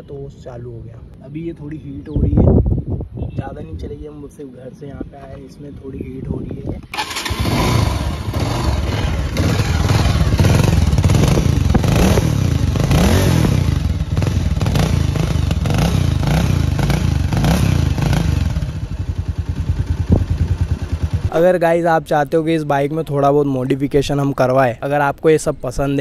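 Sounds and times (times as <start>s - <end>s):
motorcycle engine revving and idling: 6.8s - 21.6s.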